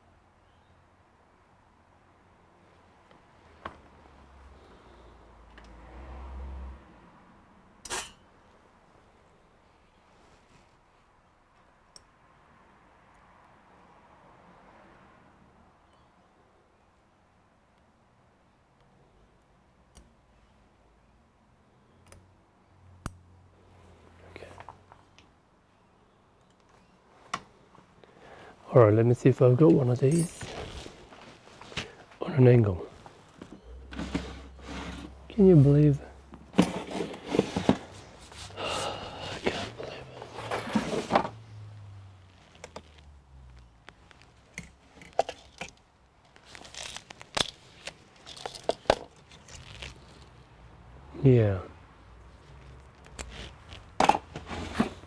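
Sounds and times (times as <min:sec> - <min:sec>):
rustling: 0:30.1 - 0:32.2, 0:32.8 - 0:50.5, 0:52.3 - 0:55.0
plastic packaging crinkling: 0:46.3 - 0:50.3.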